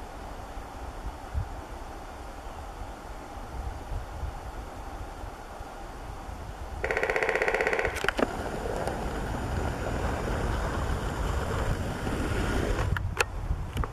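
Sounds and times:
woodpecker drumming on wood: 0:06.8 - 0:11.2.

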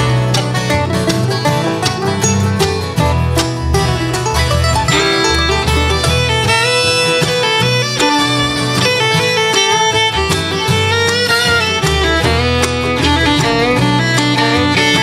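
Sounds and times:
plucked upright bass: 0:00.0 - 0:15.0
strummed acoustic guitars: 0:00.0 - 0:15.0
fiddle sliding notes: 0:00.6 - 0:15.0.

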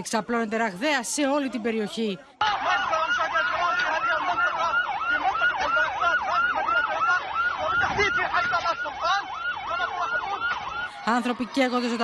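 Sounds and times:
siren yelping: 0:02.4 - 0:12.0.

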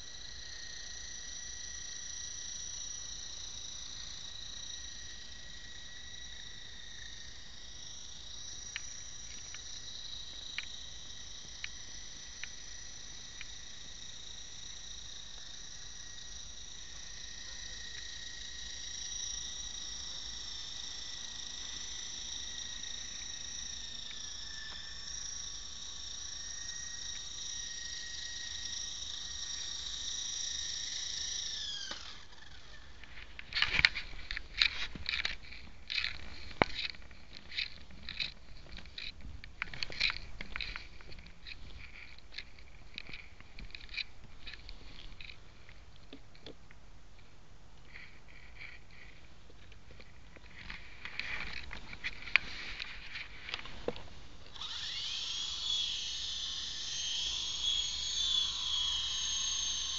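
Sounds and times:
helicopter motor whining: 0:31.4 - 0:45.4, 0:54.5 - 0:59.9.

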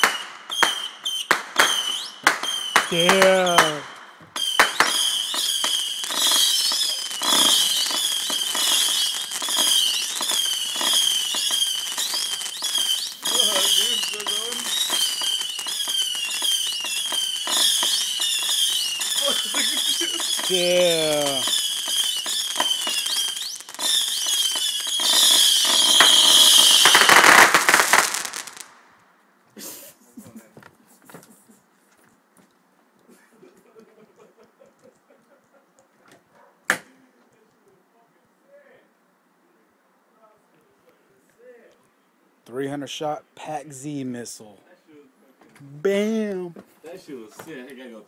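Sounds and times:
small firework pops: 0:00.0 - 0:08.8, 0:36.1 - 0:37.0
rockets whistling: 0:00.0 - 0:28.8.

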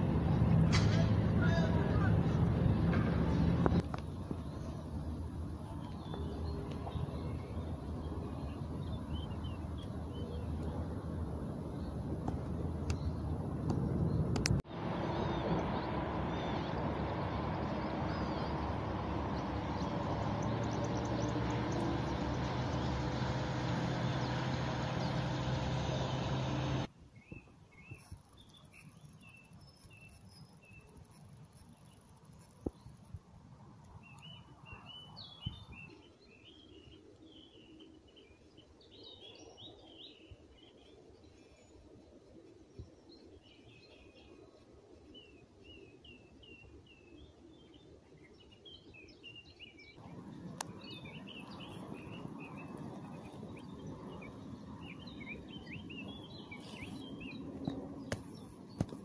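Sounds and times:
water noise: 0:00.0 - 0:26.9, 0:50.0 - 0:59.0
wind: 0:00.0 - 0:59.0
small birds chirping: 0:03.8 - 0:33.2, 0:33.9 - 0:41.9, 0:42.6 - 0:59.0
boat motor running: 0:14.7 - 0:26.9.

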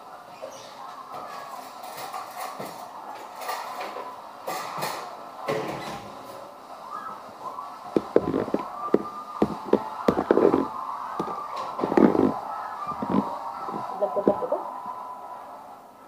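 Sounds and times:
metal spoon scraping plastic tub: 0:08.0 - 0:13.3.

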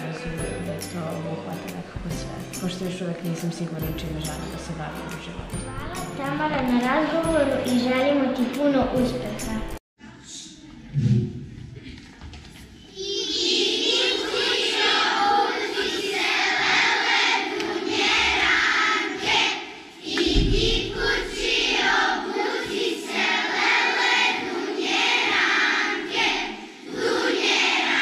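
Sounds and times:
children's choir singing: 0:00.0 - 0:01.8, 0:12.9 - 0:28.0
low thump: 0:20.2 - 0:21.4.

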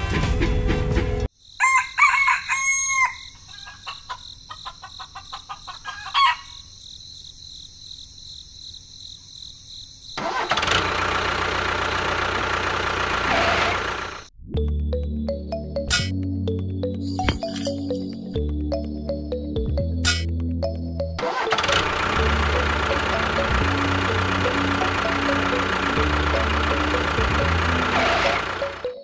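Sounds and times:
music: 0:00.0 - 0:01.3, 0:14.4 - 0:29.0
rooster crowing: 0:01.6 - 0:06.6.

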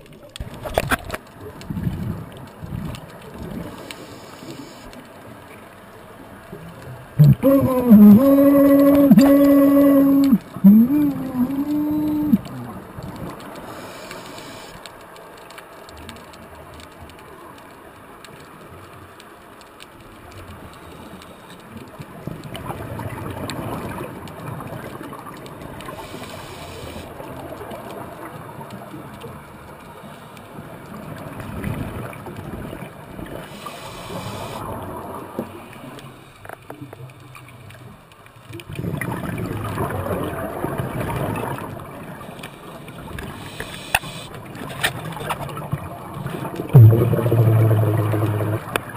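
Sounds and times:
underwater hiss: 0:03.6 - 0:04.9, 0:13.6 - 0:14.8, 0:25.9 - 0:27.2, 0:33.4 - 0:34.8, 0:42.5 - 0:44.4
exhaled bubbles gurgling: 0:06.5 - 0:14.1, 0:22.0 - 0:29.5, 0:38.5 - 0:48.9.

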